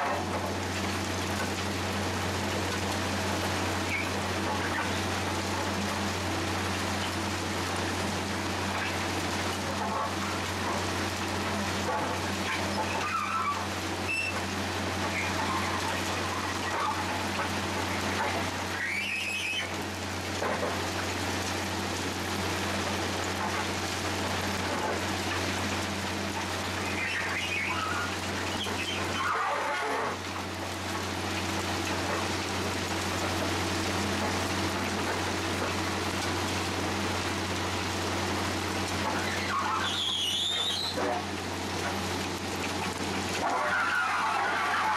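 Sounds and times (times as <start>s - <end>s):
plough scraping gravel ballast: 22.8s - 31.0s, 38.4s - 44.9s.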